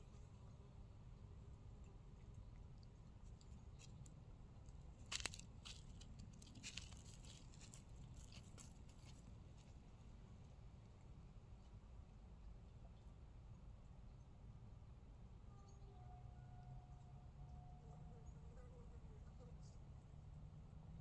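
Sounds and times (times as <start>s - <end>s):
cats crunching food: 1.5s - 9.7s.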